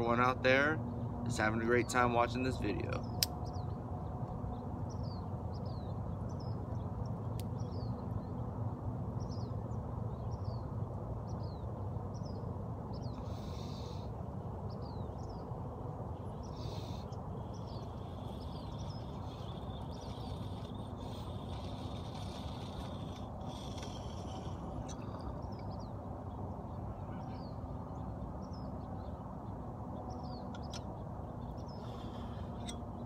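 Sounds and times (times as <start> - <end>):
low background rumble: 2.3 - 33.0
small bird chirping: 16.2 - 25.9, 30.2 - 33.0.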